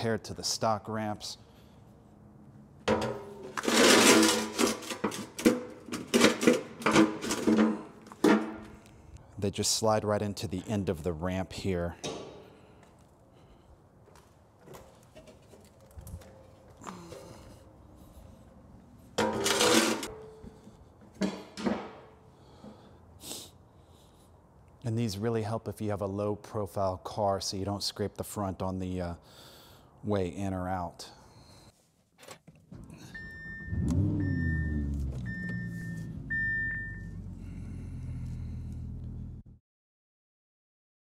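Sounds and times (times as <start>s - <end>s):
metal ramp scraping floor: 2.9s - 8.7s, 19.2s - 20.4s.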